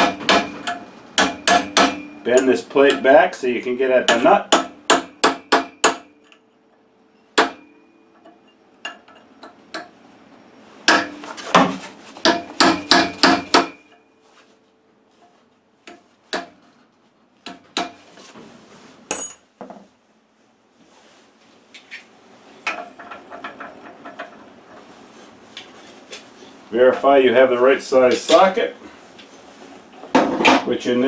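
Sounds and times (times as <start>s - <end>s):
hammer striking metal tool: 0.0s - 3.2s, 4.1s - 6.4s, 7.4s - 9.9s, 10.9s - 14.1s, 19.1s - 19.4s.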